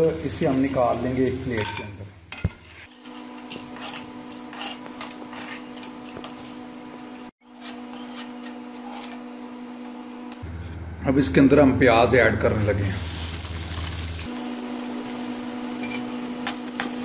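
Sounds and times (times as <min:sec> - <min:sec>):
metal spoon scraping a pan: 0:01.6 - 0:06.6, 0:07.2 - 0:09.3, 0:15.8 - 0:17.0.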